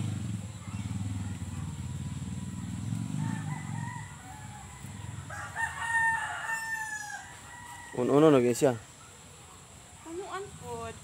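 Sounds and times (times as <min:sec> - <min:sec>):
rooster crowing: 0:03.1 - 0:08.5.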